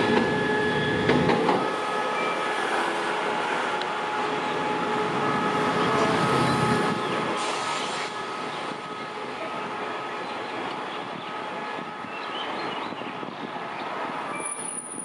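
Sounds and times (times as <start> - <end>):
train wheel noise: 0.0 - 11.8.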